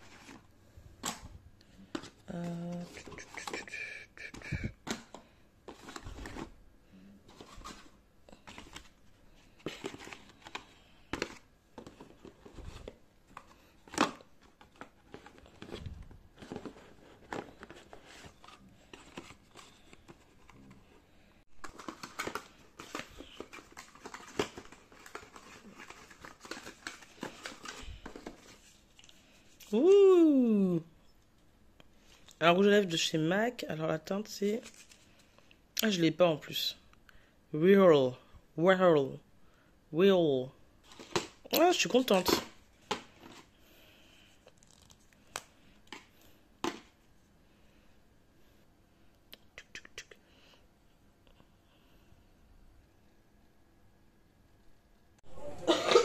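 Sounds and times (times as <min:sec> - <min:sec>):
cardboard rustling and scraping: 0:07.2 - 0:20.8.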